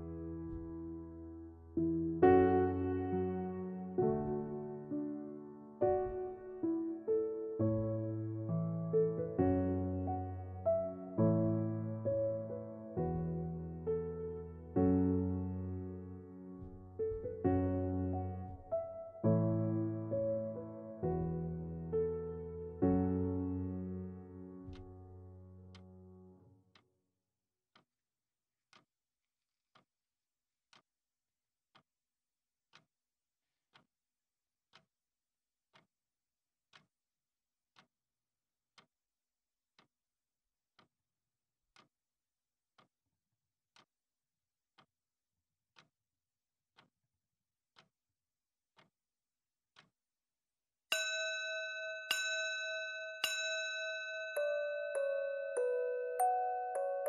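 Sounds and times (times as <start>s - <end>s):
clock chimes ringing: 50.9s - 57.0s.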